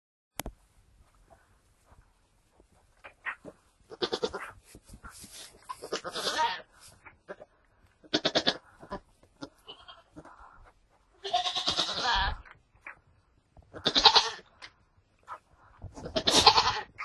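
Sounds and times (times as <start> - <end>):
rustling: 0.4 - 17.0
goat bleating: 3.2 - 4.6, 5.6 - 6.7, 7.3 - 10.4, 11.2 - 12.5, 13.7 - 14.5, 16.0 - 17.0.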